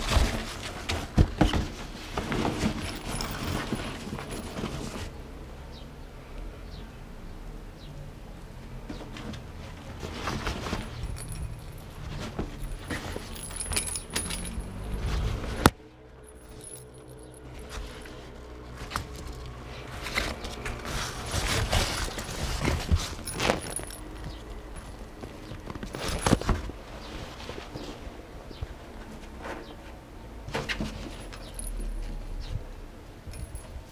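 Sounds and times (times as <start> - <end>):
fabric tunnel rustling: 0.0 - 5.2, 9.5 - 15.7, 16.3 - 29.1
toy ball jingling and rattling: 10.8 - 15.2, 16.2 - 18.1, 33.3 - 33.9.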